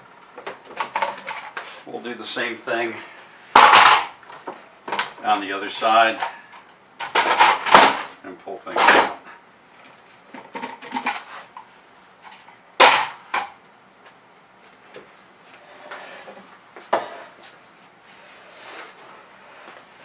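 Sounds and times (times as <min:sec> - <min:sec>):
wooden blocks sliding on workbench: 0:15.6 - 0:17.4.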